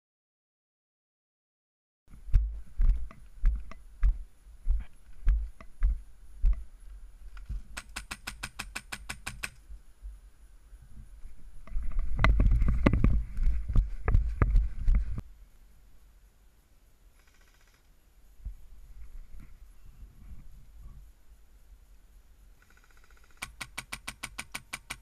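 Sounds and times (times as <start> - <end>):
airsoft rifle automatic burst: 17.2 - 17.9, 22.6 - 25.0.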